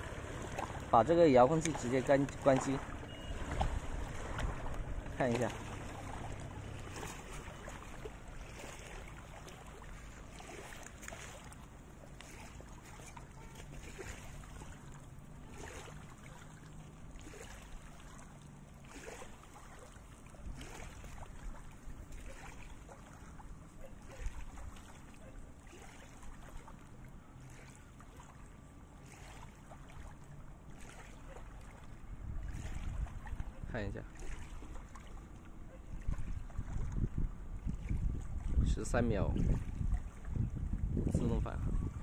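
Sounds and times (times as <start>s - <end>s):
wind rumble on microphone: 0.0s - 9.2s, 31.8s - 42.0s
waves lapping against rocks: 0.0s - 41.6s.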